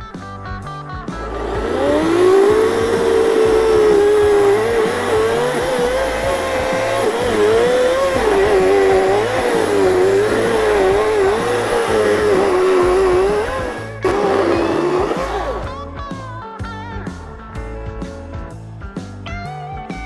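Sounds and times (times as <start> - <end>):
chainsaw cutting wood: 1.0 - 15.7.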